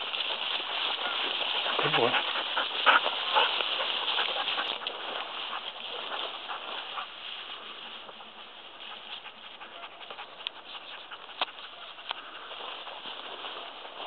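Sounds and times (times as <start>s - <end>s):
grass rustling: 0.0s - 14.0s
patter of paws: 0.0s - 14.0s.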